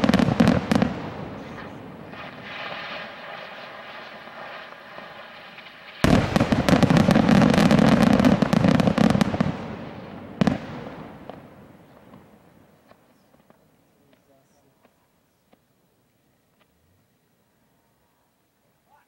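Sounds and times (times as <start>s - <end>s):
fireworks hissing and whistling: 0.0s - 13.6s
fireworks crackling bangs: 0.0s - 15.7s.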